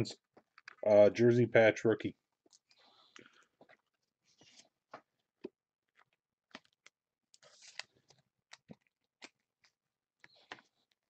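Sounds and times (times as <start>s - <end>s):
packaging crinkly rustles: 7.4s - 10.8s.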